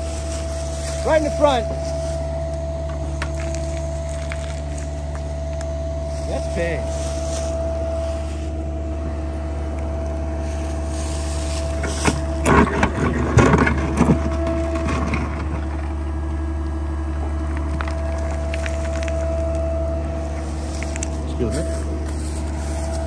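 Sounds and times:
excavator engine running: 0.0 - 23.0
bucket scraping and cracking: 2.9 - 5.2, 11.0 - 16.3, 17.2 - 19.6.

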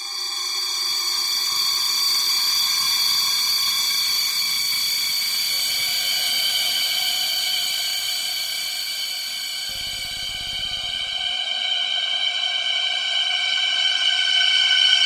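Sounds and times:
high drone tones over hiss: 9.4 - 11.4.

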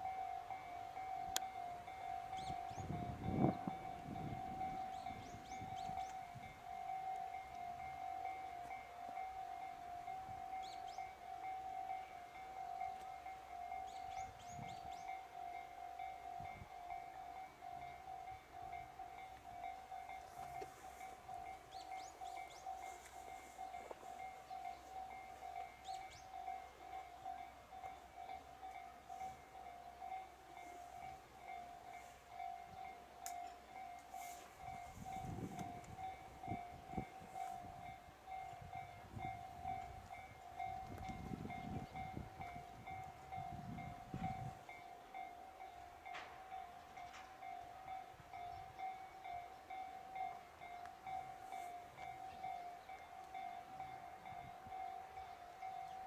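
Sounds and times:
level crossing alarm ringing: 0.0 - 56.0
wind rumbling on microphone: 2.4 - 6.6, 34.5 - 44.7.

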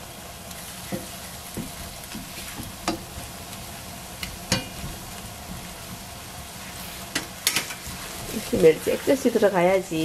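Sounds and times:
sauce and vegetables sizzling: 0.0 - 10.0
spatula knocking on pan: 0.9 - 3.2.

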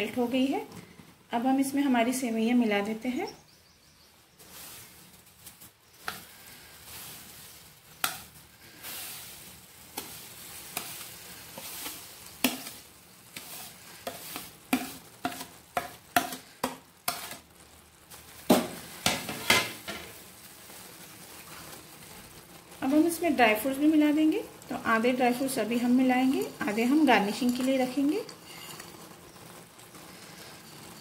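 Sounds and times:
milk sizzling in a pan: 0.0 - 31.0
wooden spatula scraping a plate: 5.6 - 17.4, 25.3 - 31.0.

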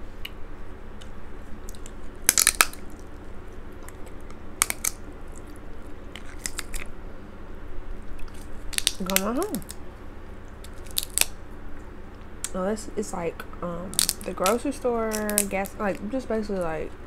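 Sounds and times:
close chewing: 1.0 - 6.9, 8.0 - 9.8
crab shell cracking: 1.0 - 6.9, 8.0 - 9.8, 10.5 - 11.4, 13.9 - 16.1.

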